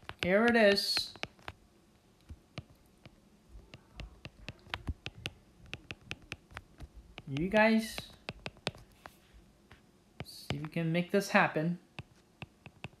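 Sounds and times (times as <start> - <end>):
stylus tapping on glass screen: 2.3 - 8.8, 12.0 - 13.0.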